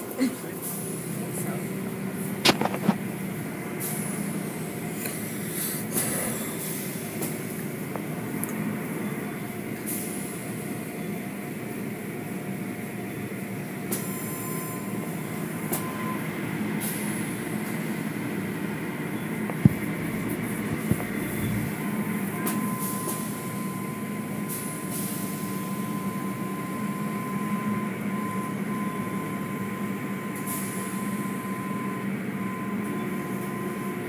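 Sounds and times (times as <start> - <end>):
car wash machinery humming: 16.3 - 24.4.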